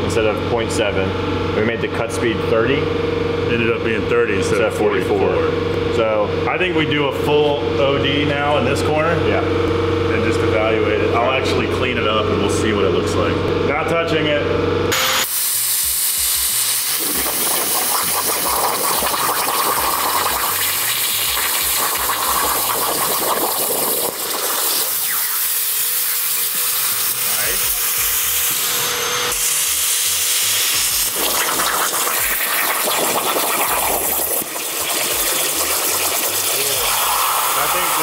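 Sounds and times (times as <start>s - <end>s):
plasma cutter hissing: 14.9s - 38.0s
water bubbling and spattering: 17.0s - 26.6s, 31.0s - 38.0s.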